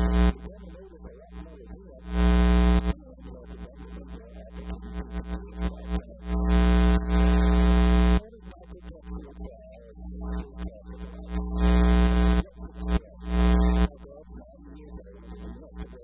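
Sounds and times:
electrical mains hum: 0.0 - 8.4, 9.9 - 14.2.

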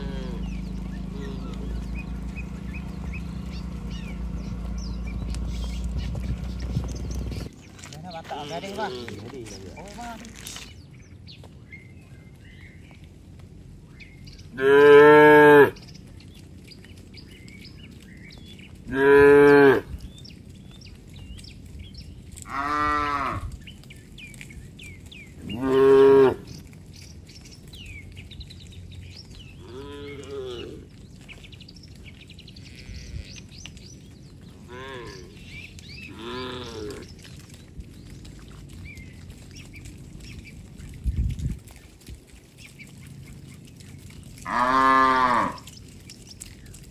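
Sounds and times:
cattle mooing: 0.0 - 6.6, 14.6 - 15.8, 18.9 - 19.9, 22.5 - 23.5, 25.4 - 26.5, 29.6 - 30.9, 32.6 - 33.5, 34.6 - 35.4, 36.0 - 37.1, 44.4 - 45.7
small birds chirping: 0.0 - 46.9.

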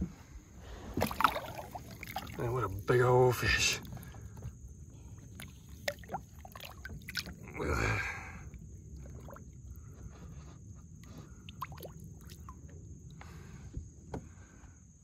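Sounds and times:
fish splashing in water: 0.9 - 2.9, 5.2 - 7.6, 11.4 - 12.7
water drips and laps: 0.9 - 7.6, 8.4 - 13.2.

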